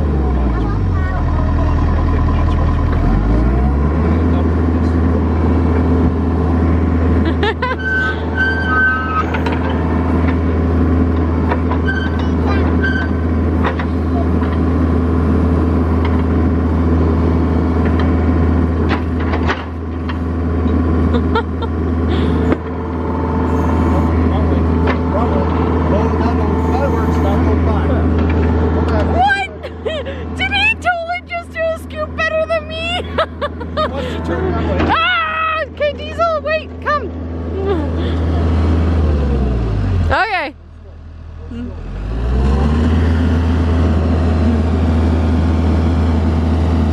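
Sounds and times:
excavator diesel engine running: 0.0s - 46.9s.

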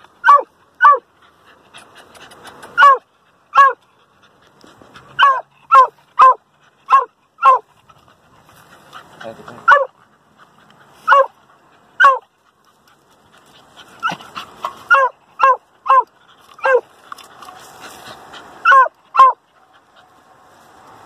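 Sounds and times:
dog barking sharply: 2.8s - 3.8s, 5.2s - 7.6s, 9.6s - 9.9s, 11.1s - 11.3s, 12.0s - 12.2s, 18.6s - 19.4s.

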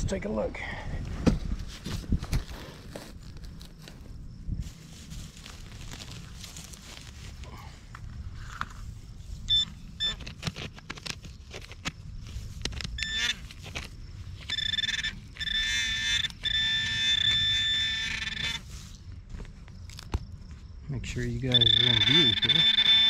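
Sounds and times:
soil crackling under fingers: 4.7s - 9.1s
high electronic beeps: 9.5s - 10.2s, 14.5s - 18.6s, 21.5s - 23.0s
steady electronic buzzing alert: 13.0s - 13.4s, 14.5s - 18.6s, 21.5s - 23.0s.

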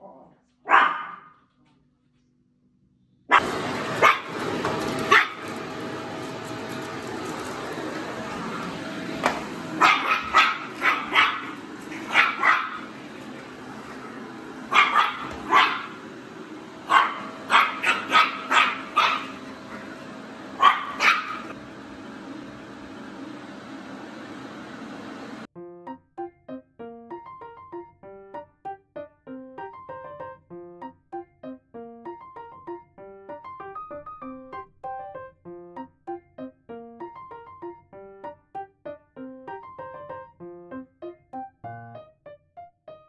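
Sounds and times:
small dog barking: 0.0s - 1.4s, 3.3s - 4.5s, 5.1s - 5.5s, 9.8s - 13.0s, 14.7s - 16.0s, 16.8s - 20.0s, 20.6s - 21.6s
vacuum cleaner running: 3.3s - 25.5s.

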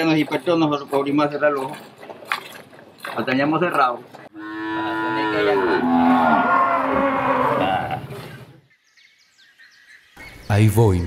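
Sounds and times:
cow mooing: 4.3s - 8.2s.

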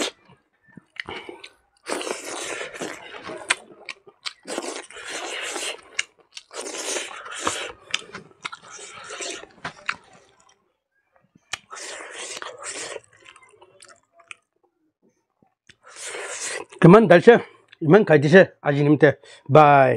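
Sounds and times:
chewing with crunching: 0.0s - 10.6s, 11.4s - 14.5s
wet mouth clicks: 0.8s - 10.6s, 11.5s - 14.5s.

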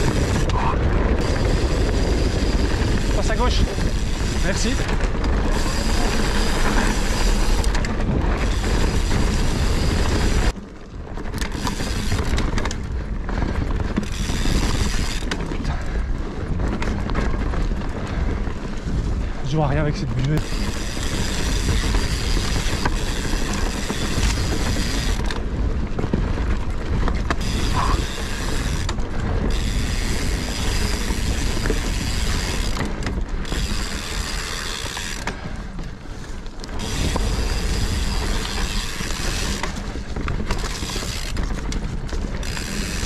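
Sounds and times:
bike freehub ratcheting buzz: 0.0s - 10.5s, 11.3s - 12.8s, 13.9s - 15.5s, 20.4s - 25.4s, 27.2s - 35.6s, 36.7s - 43.0s
tyres rumbling on dirt trail: 0.0s - 43.0s.

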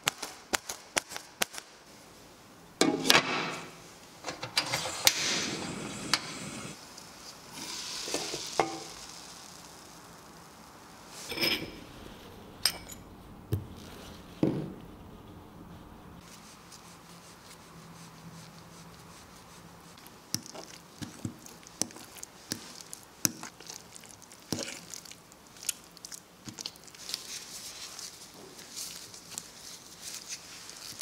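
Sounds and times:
fork stirring sticky dough: 16.2s - 31.0s.

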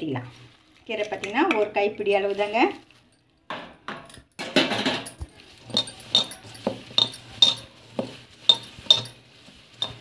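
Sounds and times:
bangles clinking: 4.0s - 10.0s.

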